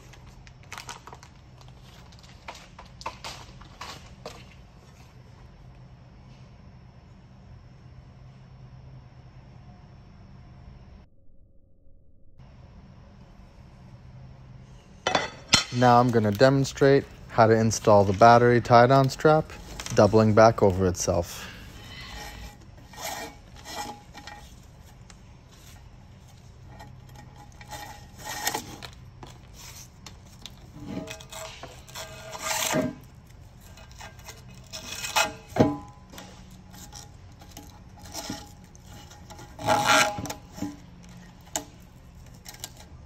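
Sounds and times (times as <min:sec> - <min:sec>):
strap rubbing and scraping: 0:15.8 - 0:43.0.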